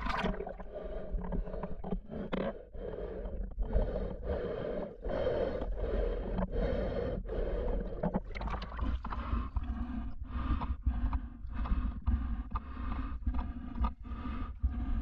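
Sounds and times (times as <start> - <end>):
water sloshing and rushing: 0.0 - 2.0, 7.9 - 9.8.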